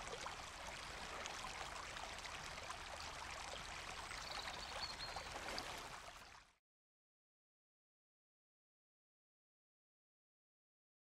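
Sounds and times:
stream running over rocks: 0.0 - 6.4.

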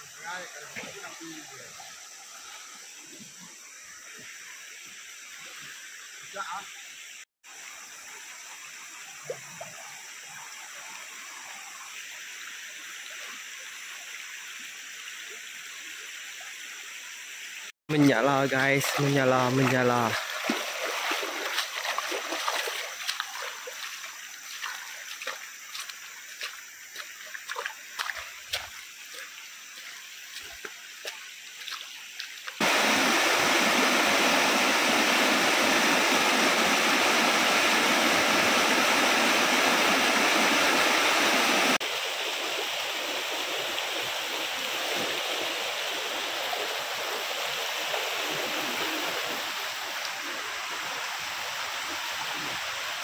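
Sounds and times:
river running over stones: 0.0 - 53.0
water rushing over rock cascade: 17.9 - 53.0
splashes of someone wading: 18.8 - 33.5.

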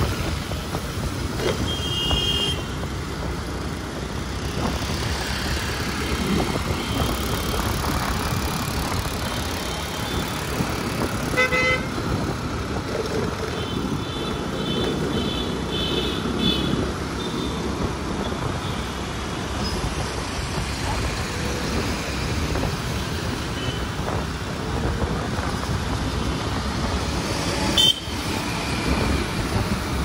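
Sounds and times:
city traffic rumble: 0.0 - 30.0
car horn honk: 1.6 - 2.8, 11.3 - 12.0, 27.8 - 28.1.

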